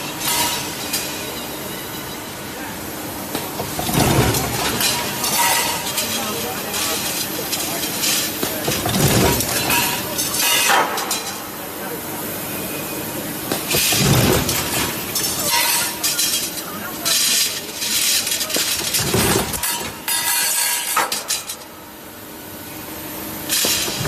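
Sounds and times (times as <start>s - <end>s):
roll forming machine running: 2.5s - 21.6s
metallic clanging and clattering: 13.6s - 21.7s.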